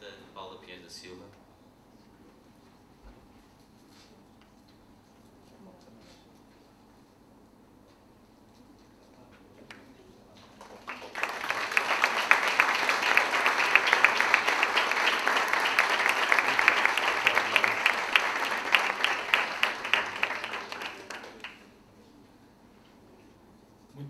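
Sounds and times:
audience applauding: 10.5s - 21.7s.

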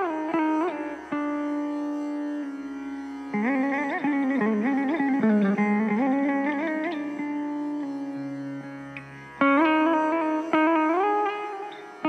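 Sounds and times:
electric guitar melody: 0.0s - 12.0s.

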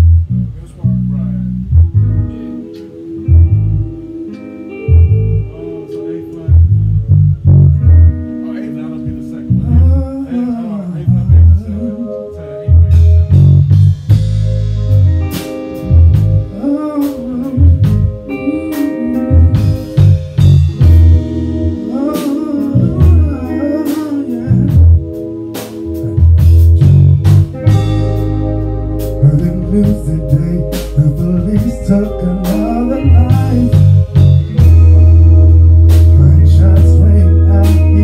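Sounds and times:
band playing guitar bass drums: 0.0s - 38.0s
person singing into microphone: 9.5s - 13.2s, 16.5s - 20.1s, 21.7s - 25.0s, 29.2s - 38.0s.

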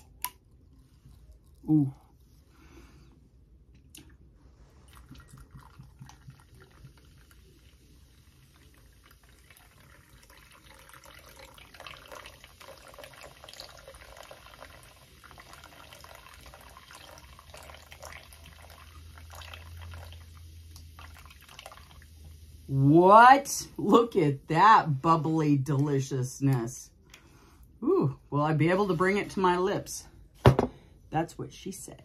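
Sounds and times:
soda fizzing: 4.6s - 24.9s
soda pouring into glass: 4.8s - 22.8s.

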